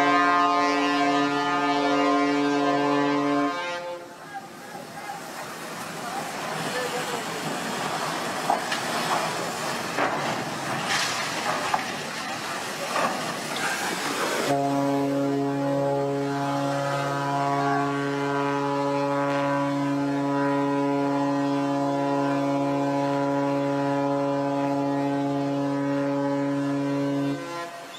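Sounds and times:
ship's horn blast: 0:00.0 - 0:04.6, 0:14.4 - 0:27.9
ship crashing and scraping on beach: 0:04.7 - 0:14.6.

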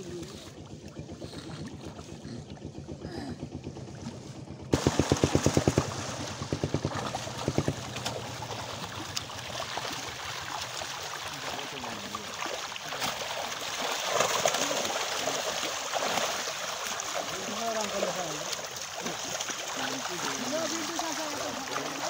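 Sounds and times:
fish splashing in a net: 0:04.7 - 0:22.0.

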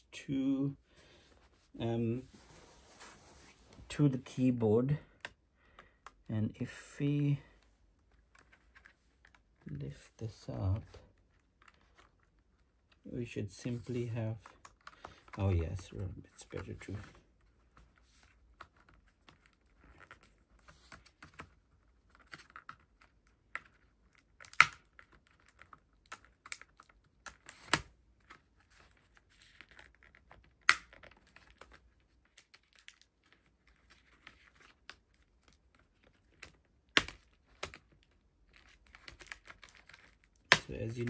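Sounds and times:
plastic clicks and rustles: 0:14.3 - 0:41.0.

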